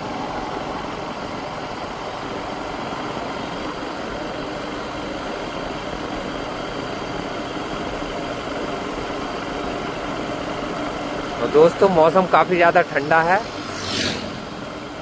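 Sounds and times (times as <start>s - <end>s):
motorcycle engine humming: 0.0s - 15.0s
road and air noise: 0.0s - 15.0s.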